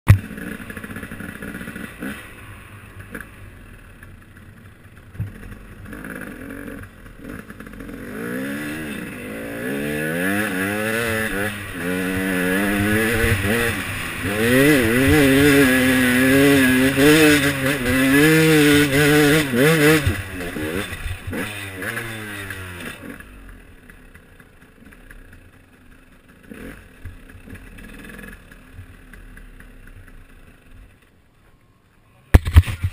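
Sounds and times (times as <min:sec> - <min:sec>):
dirt bike engine revving: 0:00.1 - 0:30.8.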